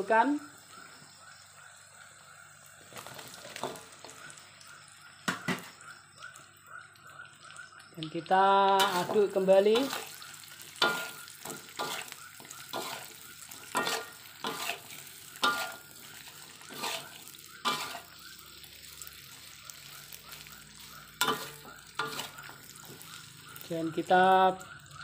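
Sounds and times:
faint sizzle: 0.0 - 25.0
spatula scraping against a wok: 8.8 - 23.7.

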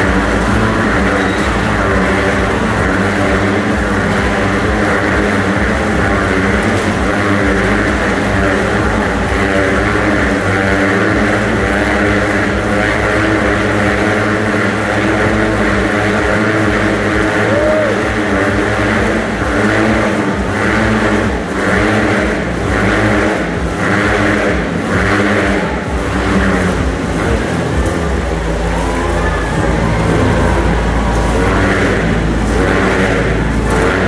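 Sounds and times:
motorcycle engines revving: 0.0 - 34.0.

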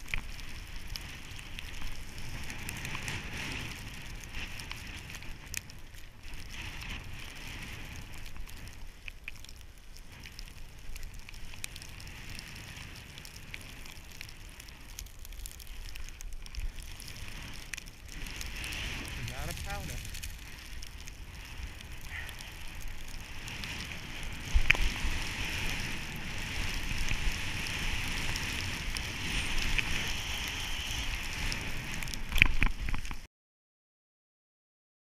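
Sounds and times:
wind rumble on microphone: 0.0 - 33.3
snowboard hissing through snow: 18.2 - 20.6, 23.2 - 32.3.

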